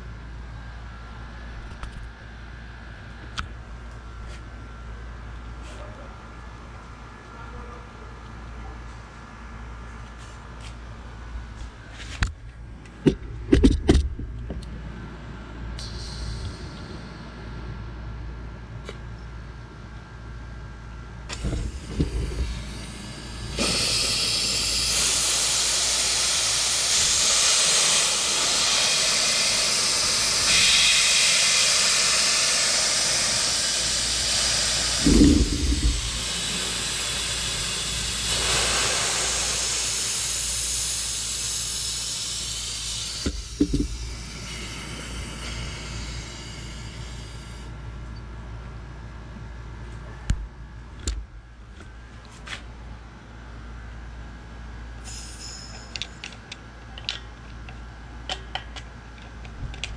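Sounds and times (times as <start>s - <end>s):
compressed air hissing from valve: 15.8s - 17.1s, 21.3s - 47.7s, 55.0s - 55.7s
valve knocks: 34.9s - 36.3s, 43.2s - 44.0s.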